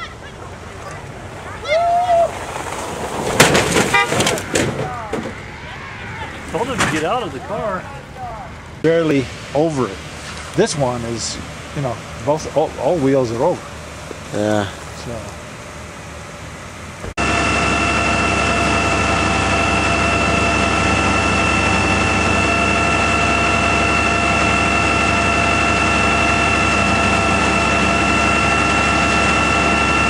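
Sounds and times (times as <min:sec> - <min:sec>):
motor droning with high whine: 0:09.8 - 0:30.0.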